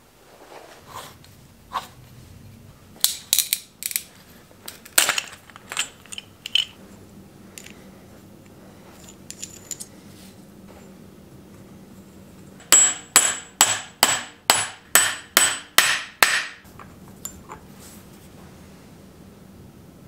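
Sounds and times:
metal tool clicking and clinking: 3.0s - 4.1s, 4.7s - 6.8s, 9.0s - 9.9s.

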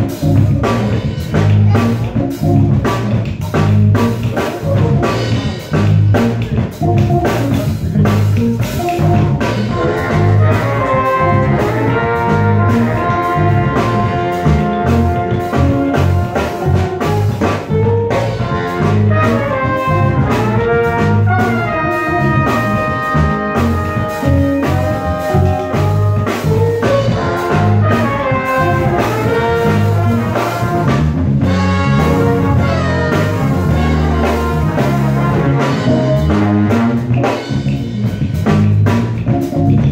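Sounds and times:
bass guitar: 0.0s - 39.9s
drum kit: 0.0s - 39.9s
horn section playing melody: 3.7s - 37.9s.

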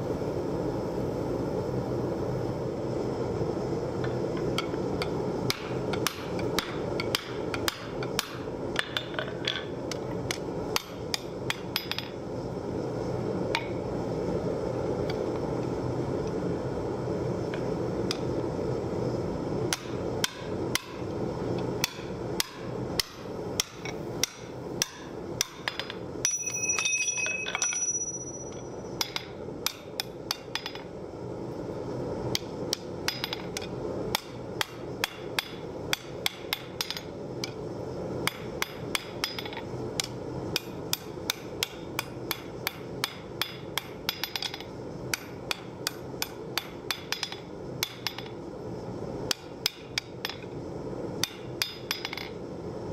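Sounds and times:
hammer striking hot steel on anvil: 4.5s - 12.2s, 19.7s - 21.1s, 21.8s - 30.9s, 32.3s - 37.6s, 38.2s - 48.4s, 49.3s - 50.5s, 51.2s - 52.4s.

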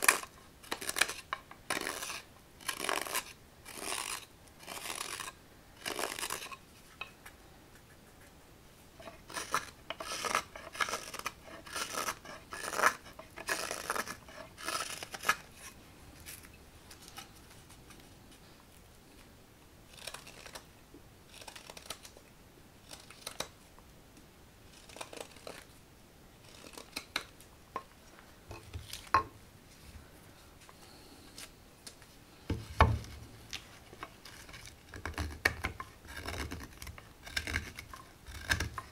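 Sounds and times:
knife scraping wood: 0.0s - 7.2s, 9.0s - 16.5s, 19.9s - 20.6s, 21.3s - 22.2s, 22.8s - 23.5s, 24.7s - 25.7s, 26.4s - 27.3s, 32.5s - 38.9s.

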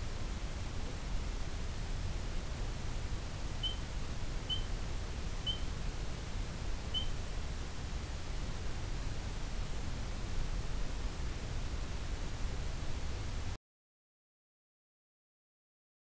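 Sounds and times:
outdoor rumble and hiss: 0.0s - 13.6s
short high peeps: 3.6s - 3.8s, 4.5s - 4.7s, 5.4s - 5.7s, 6.9s - 7.2s.

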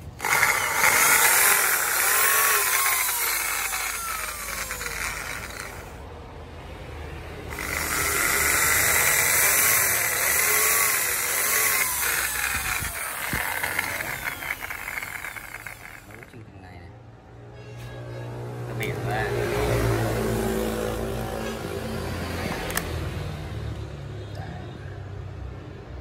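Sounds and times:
electric drill boring into bamboo: 0.0s - 6.0s, 7.5s - 16.5s.

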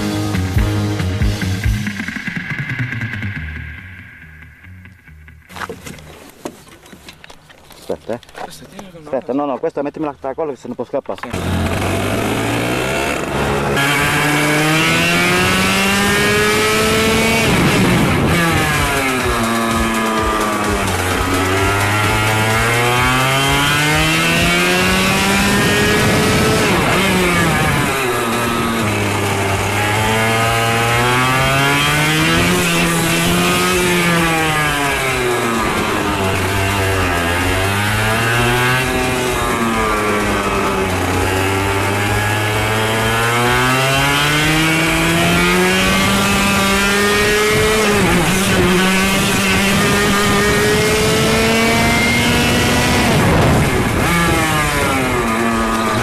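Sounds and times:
racing kart engines revving: 11.2s - 56.0s.

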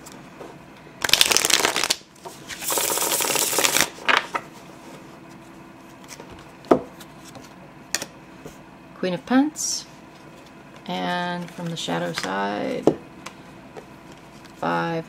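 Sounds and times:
cards riffle-shuffled: 1.0s - 4.4s.

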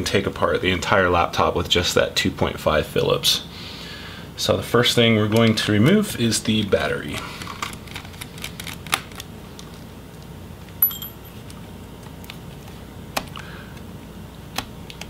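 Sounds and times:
sharp metallic clink: 10.8s - 11.4s.

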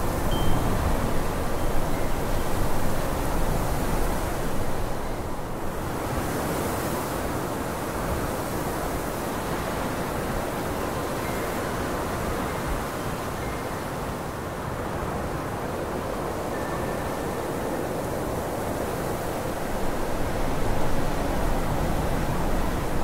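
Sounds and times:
steady rushing hiss: 0.0s - 6.3s.

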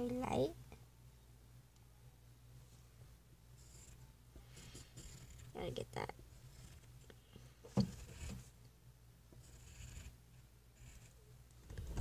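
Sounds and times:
pencil scratching on paper: 3.6s - 7.0s, 7.7s - 8.5s, 9.4s - 10.2s, 10.8s - 12.0s.

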